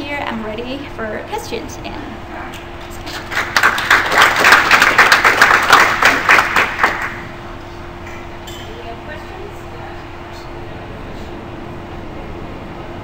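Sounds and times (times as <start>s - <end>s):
audience applauding: 3.0s - 7.3s.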